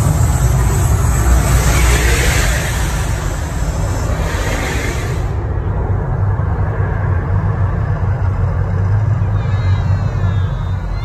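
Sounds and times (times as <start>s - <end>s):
gas fireball roaring: 0.0s - 7.9s
deep rumble: 0.0s - 11.0s.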